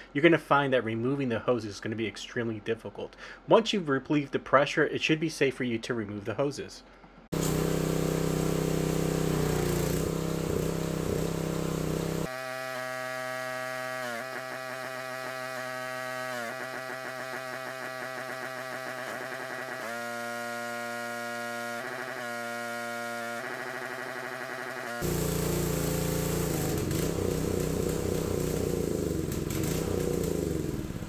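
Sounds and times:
pressure washer engine running: 7.3 - 31.0.

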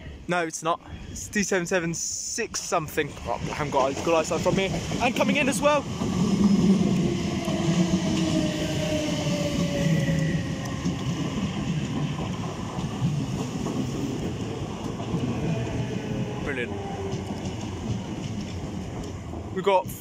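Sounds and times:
train wheels rumbling on rail: 1.6 - 20.0
train motor whine: 5.8 - 18.9.

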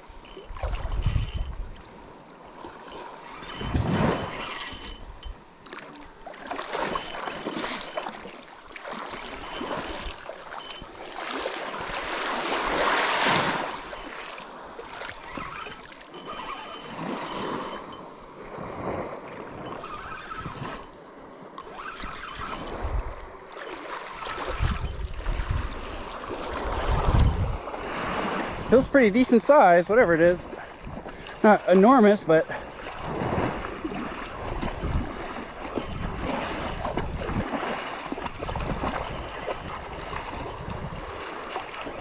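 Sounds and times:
fishing reel being cranked: 0.0 - 1.8, 2.8 - 5.4, 6.8 - 12.0, 13.3 - 18.3, 19.5 - 25.6, 26.6 - 27.6, 35.7 - 37.4
wind on microphone: 0.0 - 1.9, 3.3 - 5.4, 14.7 - 23.4, 24.1 - 29.0, 32.8 - 42.0
small waves washing: 0.0 - 42.0.

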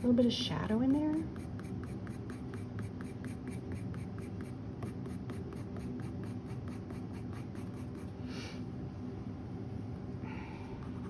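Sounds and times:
pencil scratching on paper: 0.9 - 8.1.

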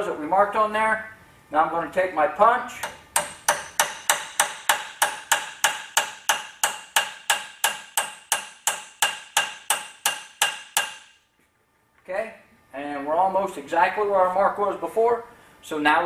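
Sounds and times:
hammer striking steel punch: 2.8 - 11.2.

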